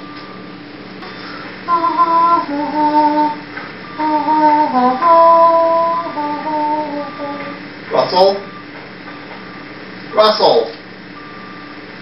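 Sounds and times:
short high melody: 0:01.7 - 0:08.6.

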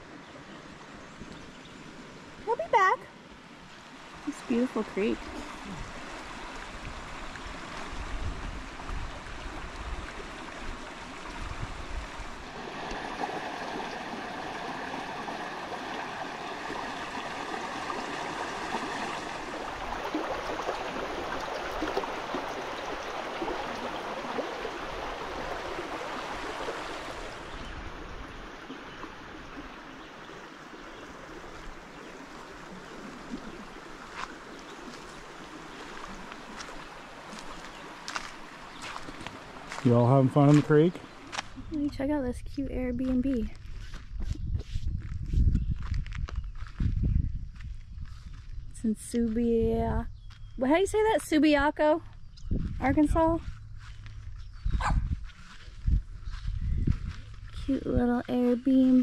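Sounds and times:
creek water rushing over rocks: 0:01.8 - 0:41.7.

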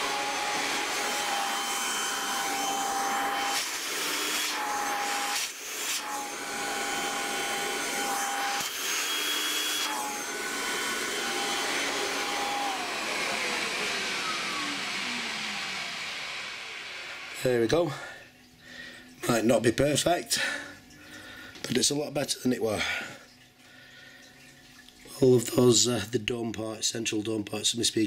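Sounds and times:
vacuum motor winding down: 0:00.0 - 0:17.6
vacuum cleaner whine: 0:00.0 - 0:18.2.

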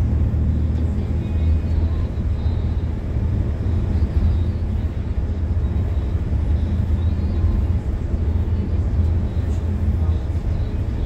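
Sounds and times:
bus engine and road rumble: 0:00.0 - 0:11.0.

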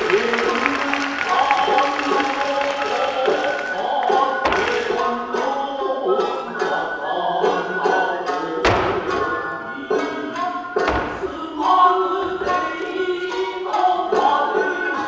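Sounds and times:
person singing: 0:00.0 - 0:15.0
sharp thumps: 0:04.4 - 0:05.3, 0:08.6 - 0:09.6, 0:10.7 - 0:13.2.

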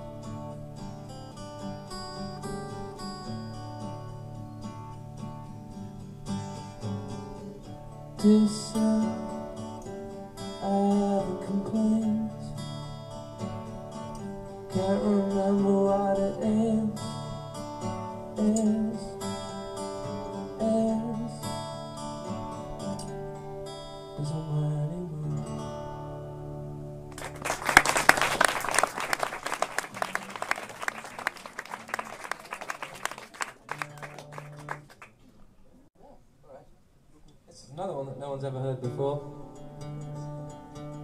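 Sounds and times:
man singing over guitar: 0:08.2 - 0:09.4, 0:10.6 - 0:12.7, 0:14.7 - 0:17.3, 0:24.2 - 0:25.7
audience applause: 0:27.1 - 0:35.2.

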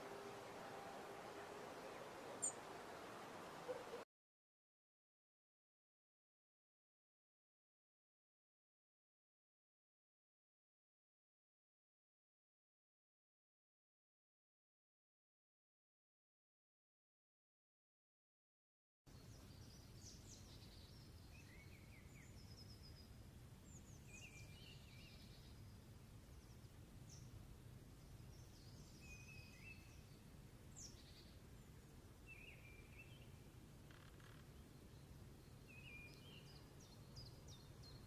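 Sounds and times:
songbirds chirping: 0:00.0 - 0:04.0, 0:19.1 - 0:38.0.

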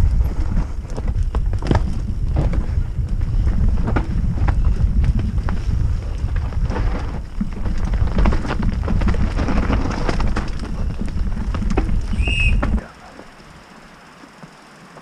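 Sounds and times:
wind buffeting microphone: 0:00.0 - 0:12.9
bike chain and frame clattering: 0:00.0 - 0:13.5
tyres drumming over roots and stones: 0:00.0 - 0:15.0
high squeal: 0:12.1 - 0:12.9.

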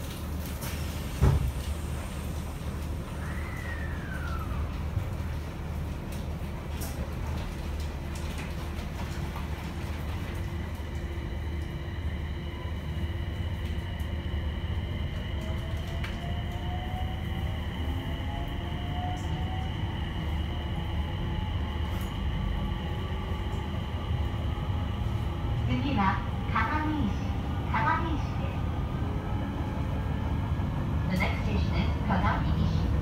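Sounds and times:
train wheels rumbling: 0:00.0 - 0:33.0
train motor whine: 0:01.0 - 0:05.0.

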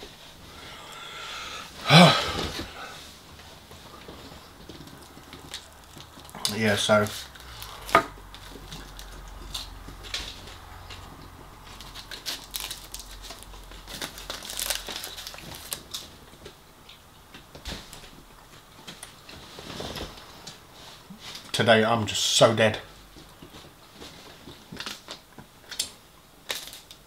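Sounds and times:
clicks and crackles: 0:03.4 - 0:20.6, 0:24.4 - 0:27.0
paper wrapping crinkling: 0:11.6 - 0:16.2, 0:24.5 - 0:27.0.

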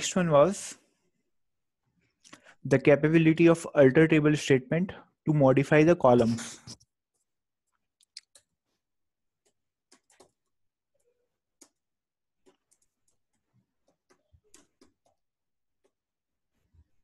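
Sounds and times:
computer keyboard typing: 0:09.4 - 0:16.0.

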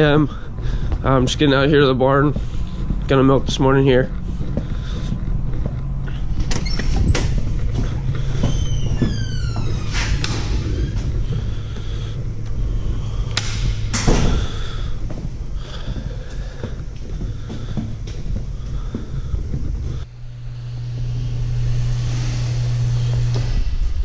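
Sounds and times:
low mechanical hum: 0:00.0 - 0:24.0
door squeak: 0:06.4 - 0:11.1
door banging: 0:13.4 - 0:14.9.

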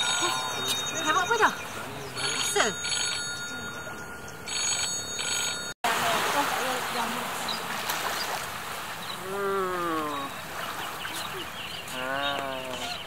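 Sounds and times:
gentle surf: 0:05.9 - 0:13.0.

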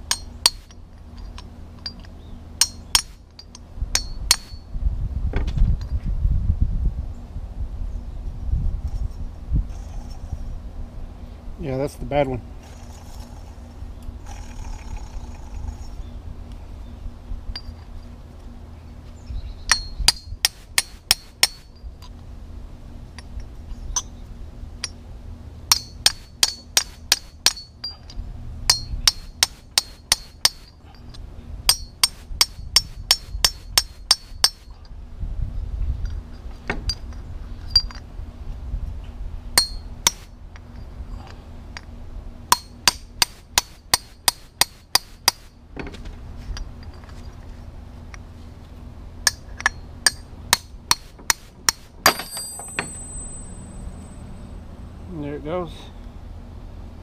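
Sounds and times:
hammer striking metal punch: 0:02.6 - 0:03.2, 0:04.0 - 0:04.6, 0:19.7 - 0:21.7, 0:25.7 - 0:27.9, 0:28.7 - 0:30.7, 0:31.7 - 0:34.7, 0:49.3 - 0:54.0.

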